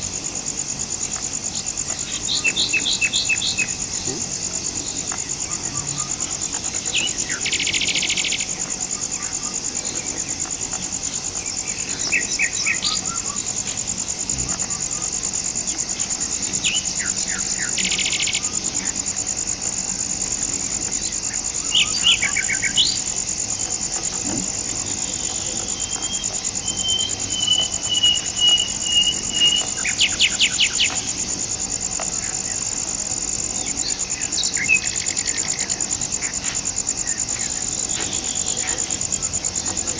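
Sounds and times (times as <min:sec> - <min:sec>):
insect chorus drone: 0:00.0 - 0:39.9
birds chirping and calling: 0:01.6 - 0:15.2.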